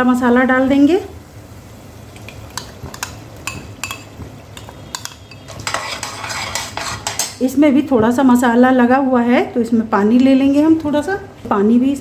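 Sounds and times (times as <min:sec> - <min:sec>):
food scraped from bowl: 0:05.5 - 0:07.3.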